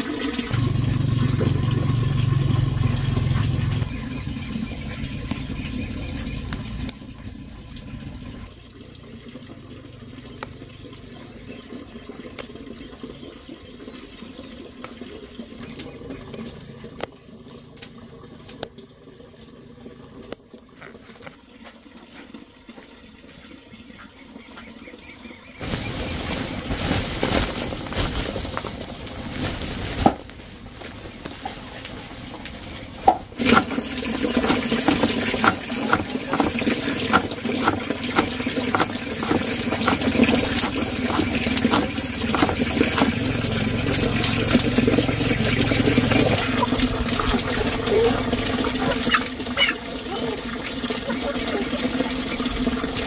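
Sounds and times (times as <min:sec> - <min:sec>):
running water: 0:00.0 - 0:53.0
cleaver chopping on cutting board: 0:34.5 - 0:43.2.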